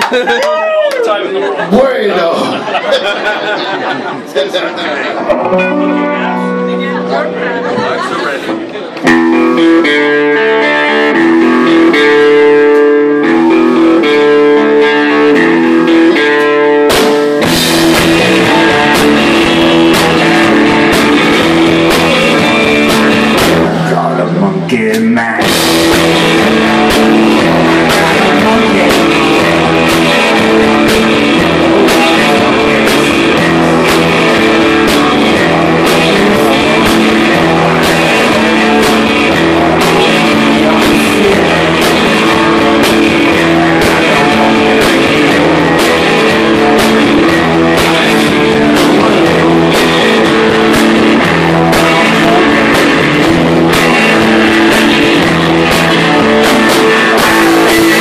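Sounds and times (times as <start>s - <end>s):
rock band playing: 0.0s - 58.0s
man singing into a microphone: 18.0s - 58.0s.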